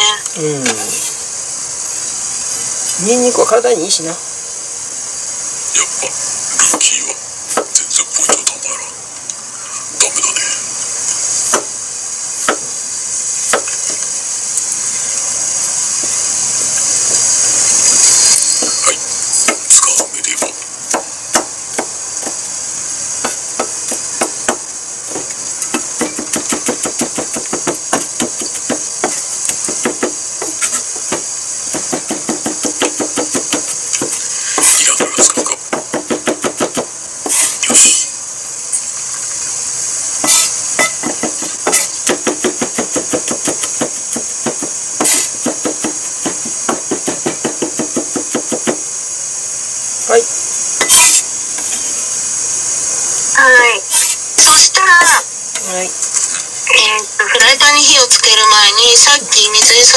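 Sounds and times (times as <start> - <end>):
knife chopping on wooden board: 12.4 - 12.6, 13.5 - 13.8, 19.4 - 22.4, 23.2 - 37.8, 40.2 - 48.8
knife blade scraping board: 30.4 - 30.8, 37.2 - 38.0, 40.2 - 42.0, 50.8 - 51.9, 53.9 - 54.2.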